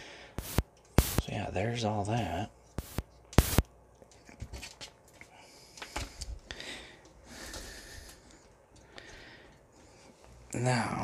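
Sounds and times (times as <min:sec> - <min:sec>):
soft hissing: 0:00.4 - 0:01.4.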